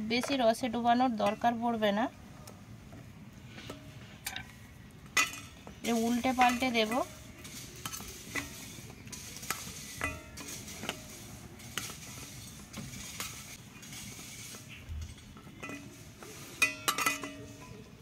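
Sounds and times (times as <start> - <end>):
metal spoon clinking in steel bowl: 5.2 - 17.8.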